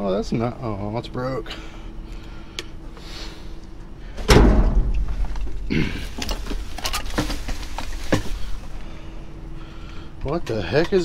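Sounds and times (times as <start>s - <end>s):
loud thump in metal dumpster: 4.2s - 5.2s
knocks and rustling of trash: 4.2s - 8.7s.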